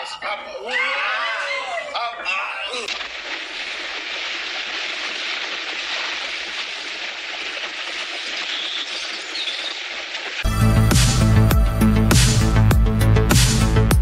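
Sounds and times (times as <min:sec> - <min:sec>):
horses splashing through river: 0:02.9 - 0:10.5.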